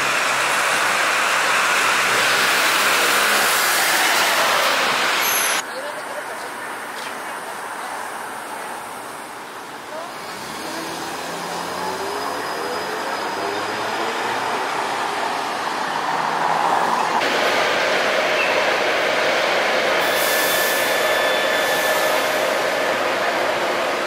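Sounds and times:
passing car traffic: 0.0 - 20.2.

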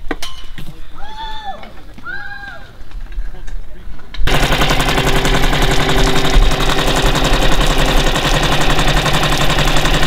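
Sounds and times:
outboard engine running: 4.3 - 10.0.

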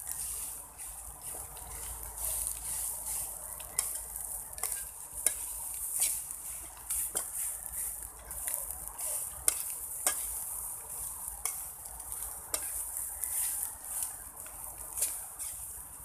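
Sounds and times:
spatula scraping and tapping pan: 0.0 - 15.9
eggs sizzling in a pan: 0.0 - 16.0.

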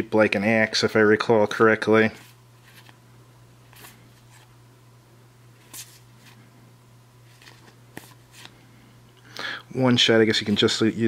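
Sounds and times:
low steady hum: 0.0 - 11.0
paper cards sliding: 2.2 - 3.0, 3.7 - 4.5, 5.6 - 6.4, 7.2 - 8.6.

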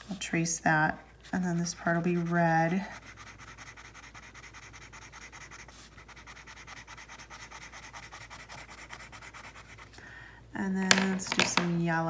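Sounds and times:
crayon scribbling on paper: 1.3 - 9.9.

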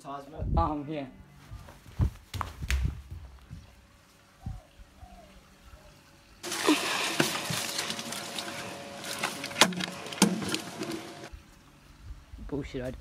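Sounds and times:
leaves rustling and scraping: 6.4 - 11.7.

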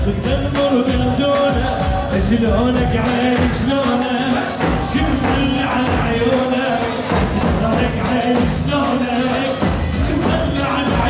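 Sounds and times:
held melody line: 0.0 - 11.0
bass drum thumps: 4.6 - 6.4, 7.1 - 8.8.

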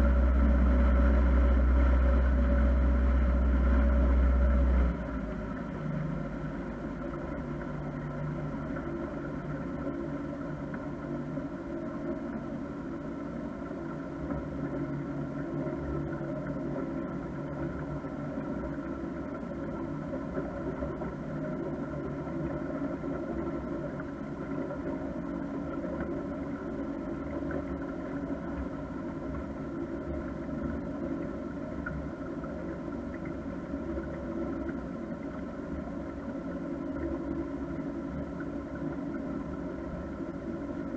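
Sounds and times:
motorboat engine humming: 0.0 - 40.9.

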